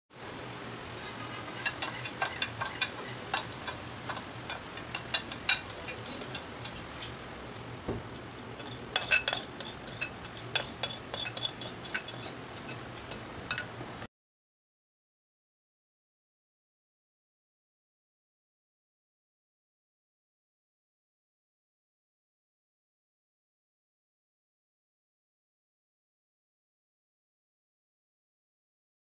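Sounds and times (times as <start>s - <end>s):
faint steady hum: 0.2s - 14.1s
metal spoon clinking on glass bowls: 1.5s - 6.8s, 8.6s - 13.8s.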